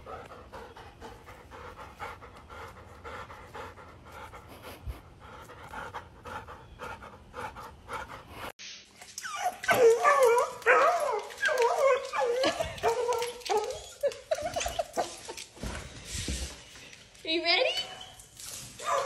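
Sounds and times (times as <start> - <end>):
dog panting: 0.0 - 8.5
dog whining and yelping: 9.0 - 15.1.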